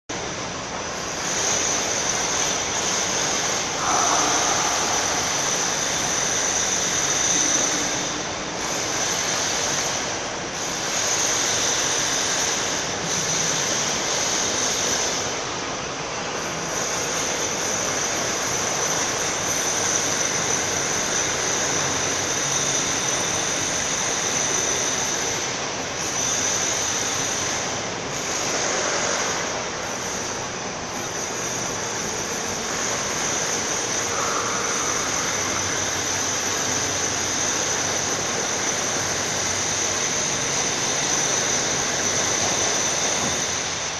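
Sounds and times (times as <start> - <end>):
electric crane drive whining: 1.1 - 9.0.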